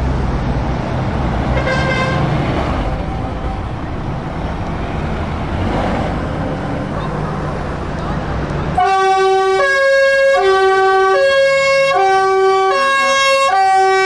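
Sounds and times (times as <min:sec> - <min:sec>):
truck diesel engine passing: 0:00.0 - 0:14.0
truck horn toot: 0:01.6 - 0:02.4, 0:08.8 - 0:14.0.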